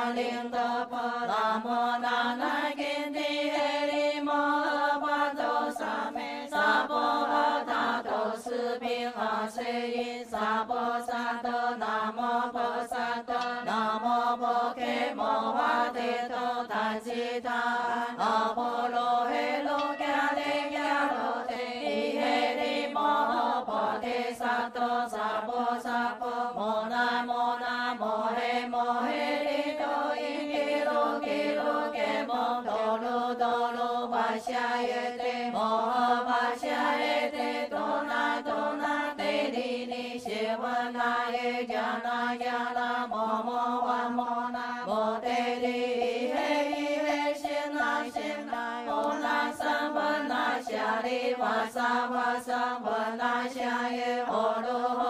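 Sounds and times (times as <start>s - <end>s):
group chanting in unison: 0.0s - 55.0s
light rhythmic taps: 12.5s - 16.0s, 19.3s - 22.8s, 45.3s - 50.8s.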